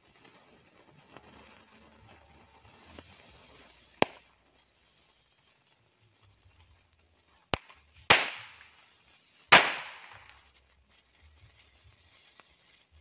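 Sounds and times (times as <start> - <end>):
firecrackers banging: 0.1 - 4.4, 7.5 - 10.5.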